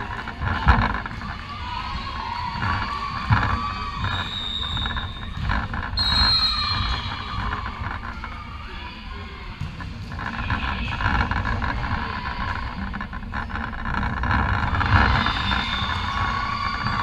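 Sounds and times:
court noise: 0:00.0 - 0:17.0
players' voices: 0:06.5 - 0:17.0.

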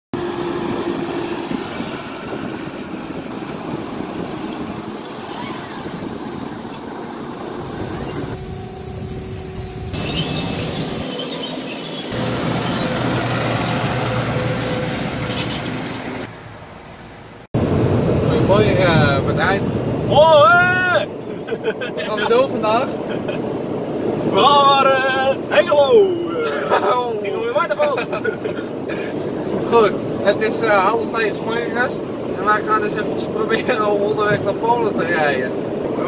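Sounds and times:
tractor engine running: 0:11.8 - 0:16.3.

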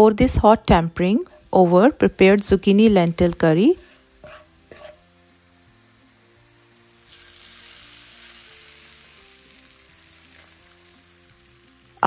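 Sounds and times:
hot oil sizzling: 0:01.1 - 0:12.0.

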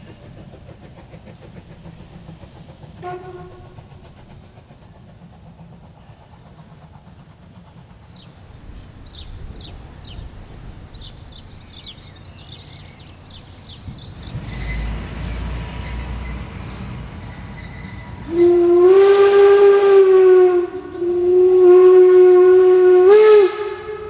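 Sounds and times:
steam locomotive whistle blasts: 0:03.0 - 0:03.9, 0:17.2 - 0:24.0.

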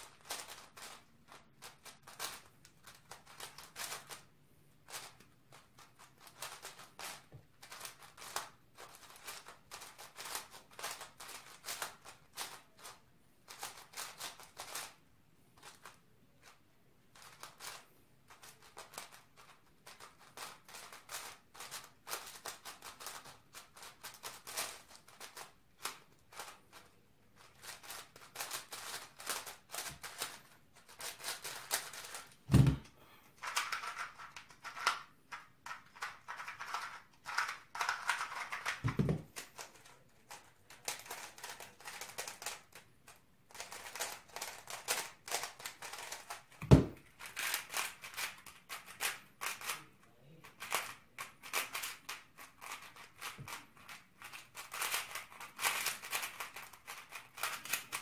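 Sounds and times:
speed cube clicking: 0:05.8 - 0:12.6, 0:17.2 - 0:19.2, 0:54.2 - 0:58.0.

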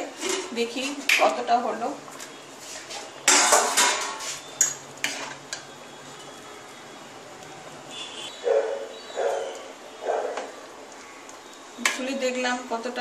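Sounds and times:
metal pot lid clattering: 0:03.3 - 0:05.4.

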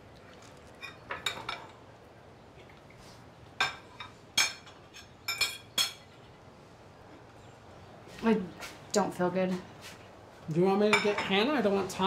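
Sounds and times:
plates and cutlery clinking: 0:00.7 - 0:01.8, 0:03.6 - 0:06.1.

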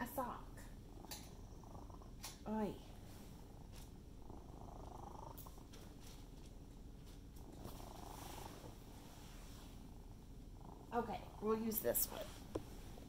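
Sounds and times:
cat purring: 0:00.0 - 0:13.0
faint clicks and rustles: 0:02.1 - 0:10.0.

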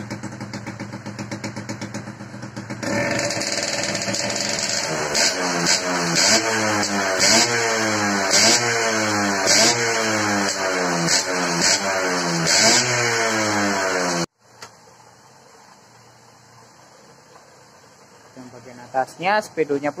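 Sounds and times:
two-stroke engine revving: 0:00.0 - 0:14.3
man talking: 0:18.4 - 0:20.0.

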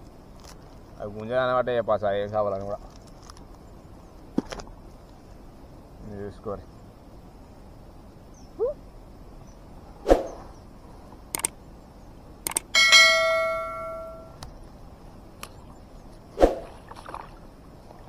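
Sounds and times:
bell ding: 0:12.8 - 0:14.4.

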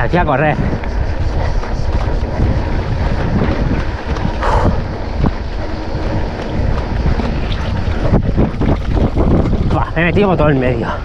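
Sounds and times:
bike rattling: 0:00.0 - 0:11.0
wind rushing over microphone: 0:00.0 - 0:11.0.

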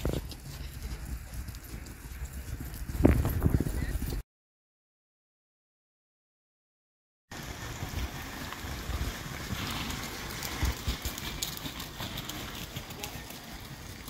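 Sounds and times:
horse hoofbeats on sand: 0:00.0 - 0:04.2
wind buffeting microphone: 0:00.0 - 0:04.2, 0:07.4 - 0:14.0.

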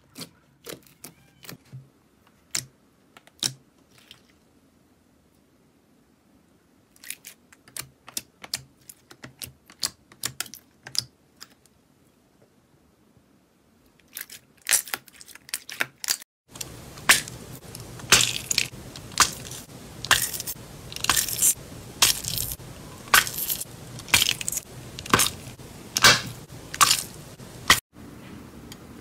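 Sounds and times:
slime crackling squishes: 0:14.0 - 0:27.8
steady hiss: 0:16.5 - 0:28.5.

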